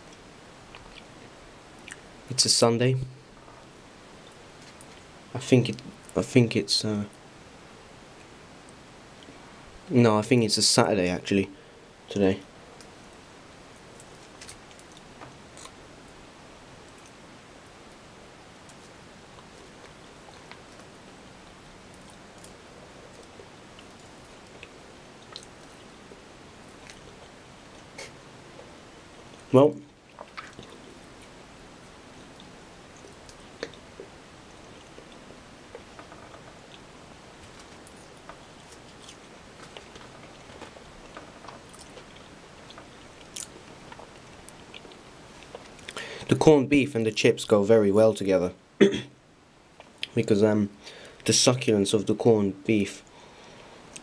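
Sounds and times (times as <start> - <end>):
chewing: 0.0 - 1.1, 21.9 - 25.9, 30.1 - 31.4, 32.2 - 46.0
steady low hiss: 0.0 - 54.0.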